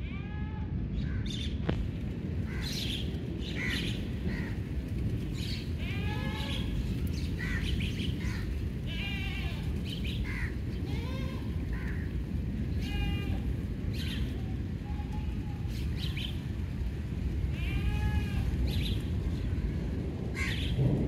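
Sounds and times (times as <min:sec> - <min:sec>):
steady low rushing noise: 0:00.7 - 0:21.0
birds chirping: 0:01.0 - 0:16.8, 0:17.6 - 0:19.6
livestock bleating: 0:05.8 - 0:06.7, 0:08.9 - 0:09.7.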